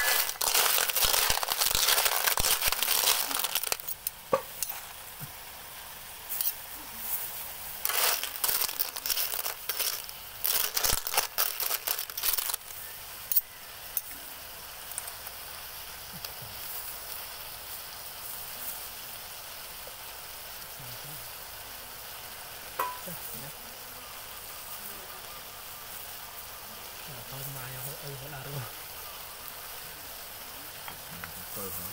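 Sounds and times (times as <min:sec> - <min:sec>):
shells rattling in metal wok: 0:00.0 - 0:04.8, 0:07.8 - 0:12.7
food sizzling: 0:00.0 - 0:31.9.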